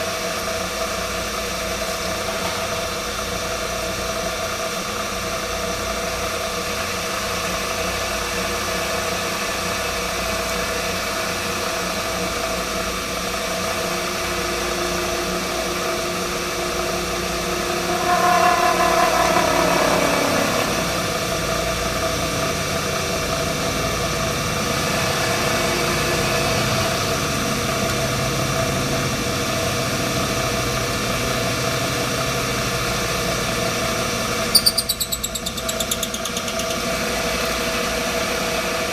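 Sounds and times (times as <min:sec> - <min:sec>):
milling machine motor hum: 0:08.3 - 0:38.9
end mill cutting steel: 0:13.5 - 0:28.8, 0:33.0 - 0:38.9
wavering screech: 0:16.8 - 0:22.2, 0:34.5 - 0:37.8.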